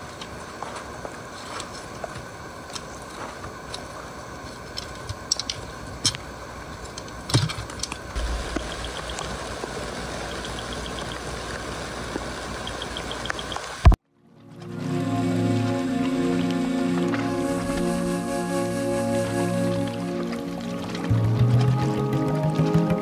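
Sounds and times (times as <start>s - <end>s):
car engine starting and idling: 8.2s - 11.1s
faint rapid ticking: 8.2s - 11.4s, 12.6s - 13.7s.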